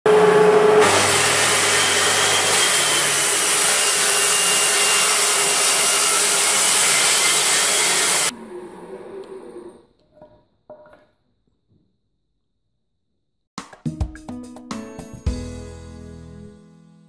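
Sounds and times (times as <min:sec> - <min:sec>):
circular saw cutting timber: 0:00.1 - 0:09.8.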